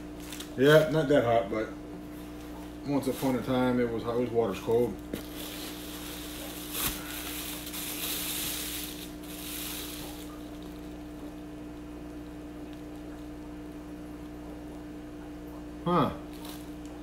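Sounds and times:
steady low hum: 0.0 - 17.0
plastic bag rustling: 0.2 - 0.8, 2.2 - 11.4, 16.3 - 17.0.

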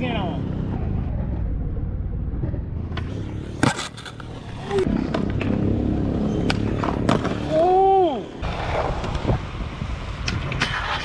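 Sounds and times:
skateboard wheels rolling: 2.9 - 11.0
person shouting: 7.4 - 8.3.

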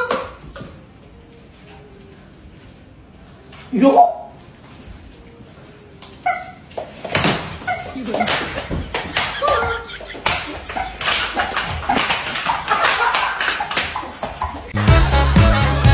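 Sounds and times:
rubber chickens squawking: 6.3 - 14.8.

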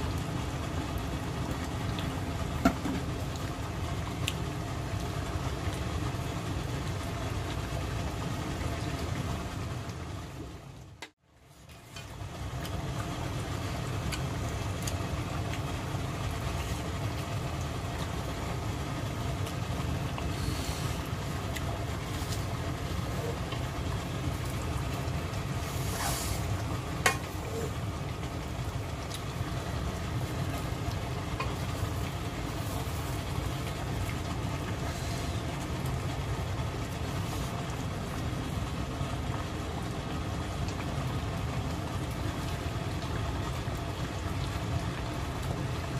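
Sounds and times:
stew bubbling: 0.0 - 45.9.

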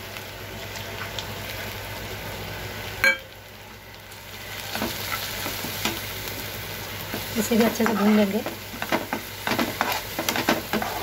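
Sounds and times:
food sizzling in oil: 0.0 - 11.0
ladle scraping a pan: 9.5 - 11.0.

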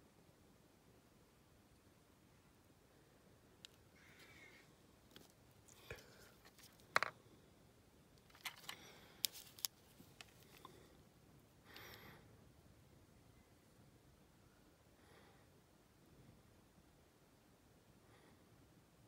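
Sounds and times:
small objects clicking and tapping: 5.1 - 7.2.

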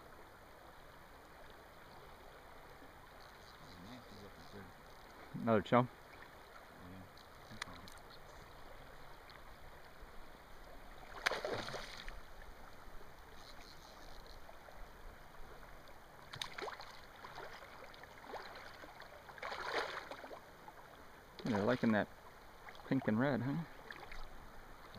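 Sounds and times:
shallow river water washing: 0.0 - 24.9
fish splashing: 11.0 - 12.2, 16.3 - 20.4.

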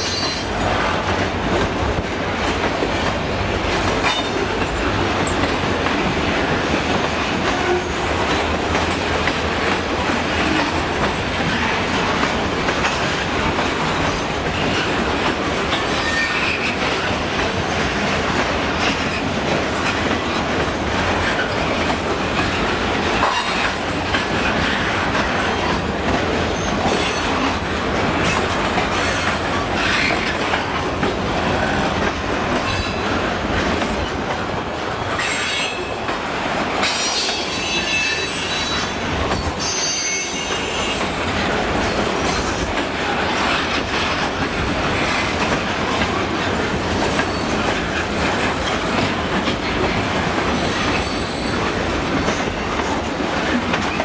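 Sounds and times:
train wheels squealing: 0.0 - 0.9, 15.7 - 17.2, 26.4 - 27.5, 35.0 - 36.1, 36.8 - 41.1, 46.6 - 48.0, 50.6 - 52.5
train wheels rumbling and clattering: 0.0 - 54.0.

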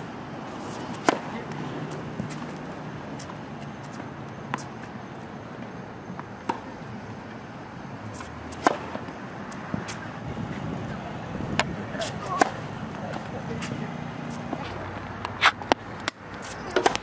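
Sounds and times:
tennis racket striking ball: 0.5 - 4.7, 6.2 - 6.7, 8.1 - 10.0, 11.5 - 12.7, 13.6 - 17.0.

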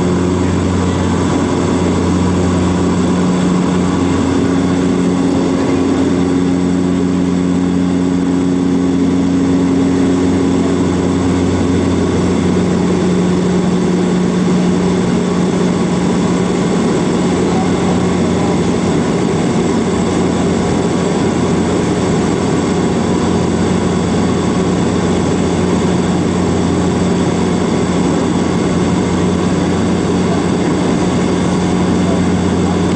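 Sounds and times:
airliner engine drone in cabin: 0.0 - 32.9.

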